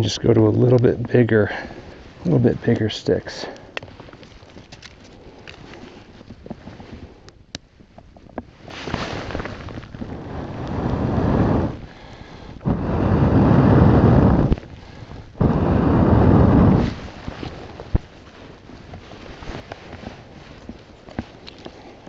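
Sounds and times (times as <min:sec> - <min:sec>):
person blowing on tinder: 0:08.6 - 0:18.0.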